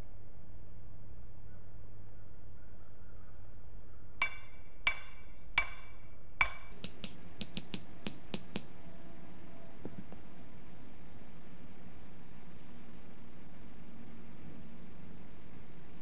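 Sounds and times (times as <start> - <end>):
hammer striking metal stake: 4.2 - 8.7
light hammer taps: 6.4 - 8.7.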